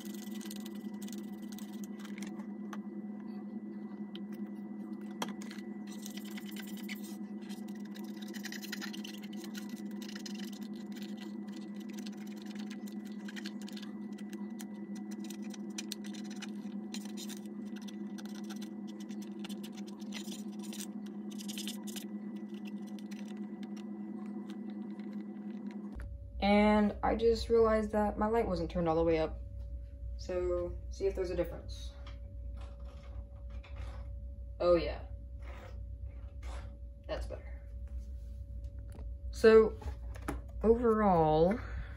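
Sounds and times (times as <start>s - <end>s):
cotton swab scratching plastic: 0.0s - 2.4s, 5.4s - 23.9s
steady low hum: 0.0s - 41.9s.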